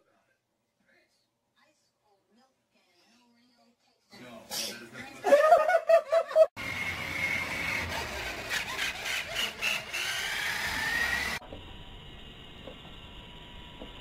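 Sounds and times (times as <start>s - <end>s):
toy truck motor whining: 6.6s - 11.4s
robot vacuum humming: 6.6s - 14.0s.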